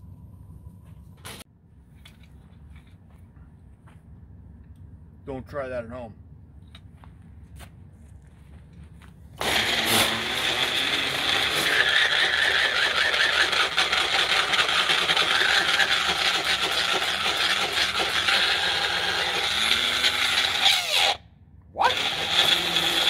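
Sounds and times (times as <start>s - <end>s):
blender grinding: 9.4s - 21.2s, 21.8s - 23.0s.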